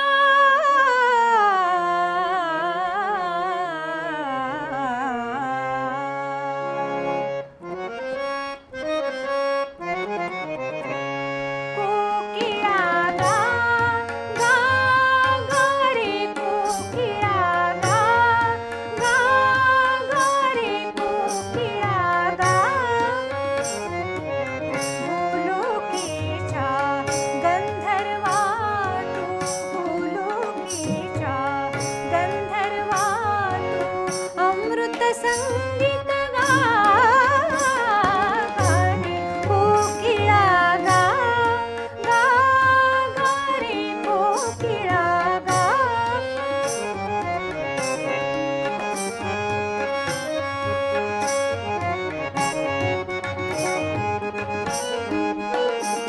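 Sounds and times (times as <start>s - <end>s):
woman singing: 0.0s - 6.6s, 11.8s - 23.8s, 24.9s - 47.2s
harmonium: 0.0s - 56.0s
tabla rhythm: 6.6s - 56.0s.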